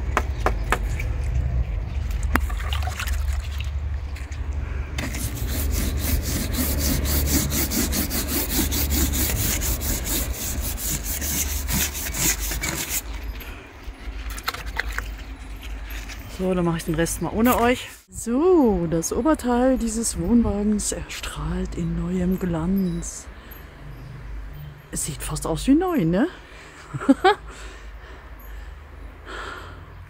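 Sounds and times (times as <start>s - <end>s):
plastic brush scrubbing a wall panel: 5.0s - 13.1s.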